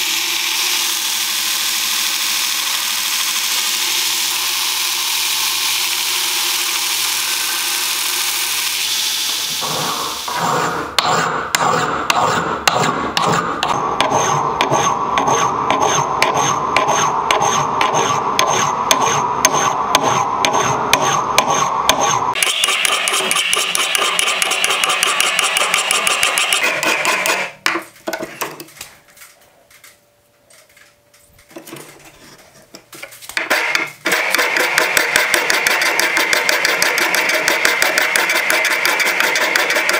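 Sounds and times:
grinder on steel: 0.0 - 27.6, 33.4 - 39.9
files rasping on steel: 9.6 - 27.6, 33.6 - 39.9.

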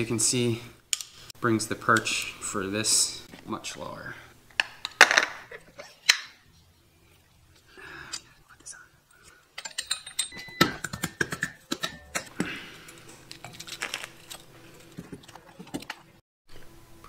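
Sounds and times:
metal car parts clinking: 9.6 - 10.4.

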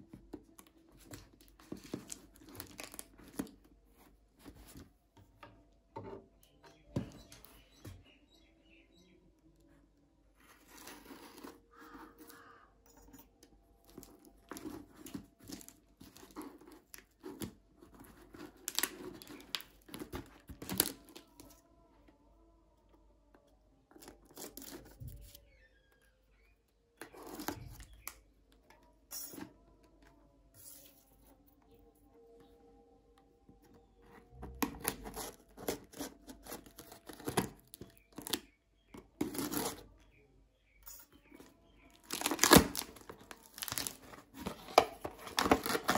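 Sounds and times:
cardboard box tearing open: 42.0 - 45.9
packing tape ripping: 42.0 - 45.9.

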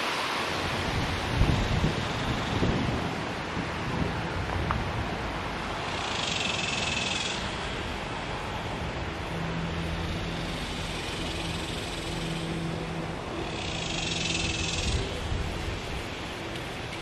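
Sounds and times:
wind noise: 0.0 - 17.0
distant engine humming: 4.2 - 17.0.

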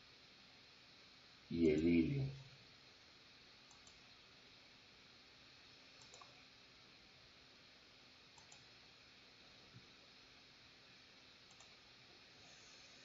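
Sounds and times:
low room hiss: 0.0 - 13.0
computer mouse clicks: 3.7 - 4.0, 6.0 - 6.4, 8.4 - 8.7, 11.5 - 11.8.

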